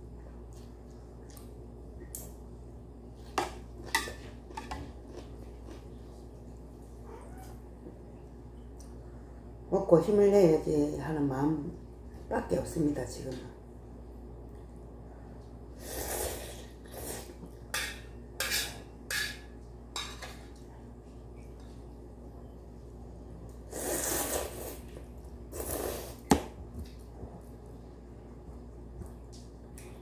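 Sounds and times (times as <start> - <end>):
slurping noodles: 23.7 - 24.9.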